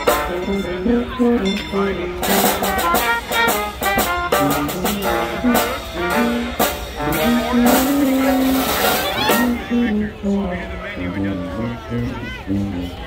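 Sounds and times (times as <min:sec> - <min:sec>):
lively brass jazz music: 0:00.0 - 0:10.3
held low brass note: 0:02.5 - 0:10.1.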